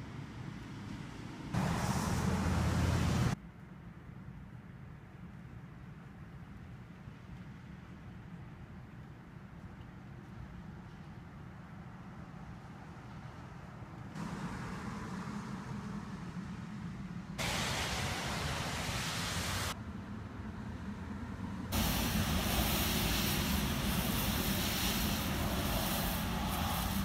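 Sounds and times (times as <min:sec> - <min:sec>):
background rumble and hiss: 0:01.6 - 0:27.0.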